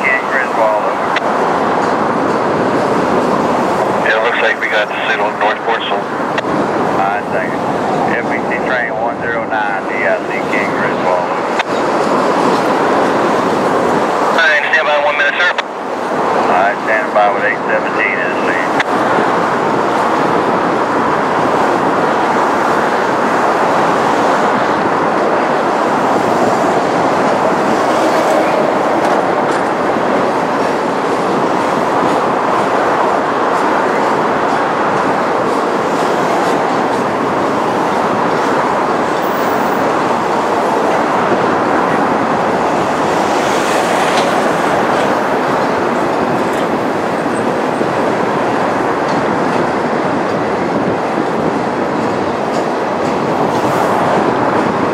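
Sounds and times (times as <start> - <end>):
train wheels rolling on rails: 18.7 - 54.9.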